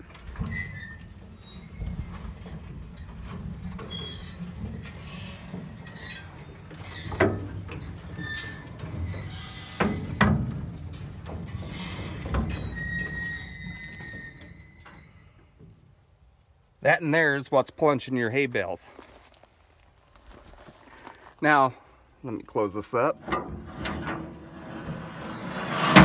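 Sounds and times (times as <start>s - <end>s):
metal clunks and knocks: 0.0s - 15.0s, 23.2s - 25.0s
brief metal squeaks: 0.4s - 15.4s
held squeal: 0.4s - 15.5s.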